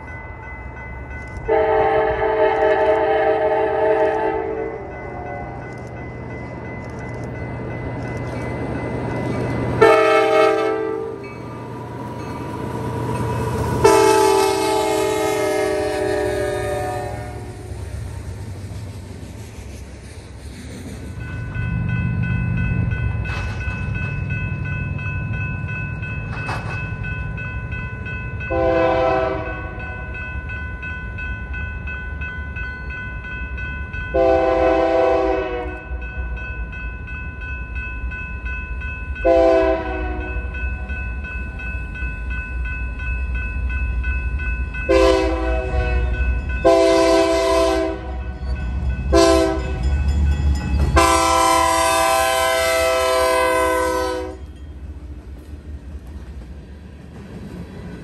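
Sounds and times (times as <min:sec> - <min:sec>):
locomotive air horn blasts: 0:01.5 - 0:05.6, 0:09.8 - 0:11.2, 0:13.8 - 0:17.7, 0:28.5 - 0:29.8, 0:34.2 - 0:35.8, 0:39.2 - 0:40.3, 0:44.9 - 0:48.2, 0:49.1 - 0:49.8, 0:51.0 - 0:54.4.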